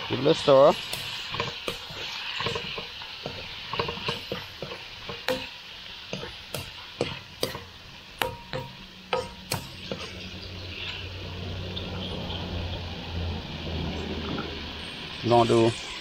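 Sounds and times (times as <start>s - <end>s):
food sizzling in a pan: 0.0s - 16.0s
utensil clinking against pan: 0.7s - 10.1s.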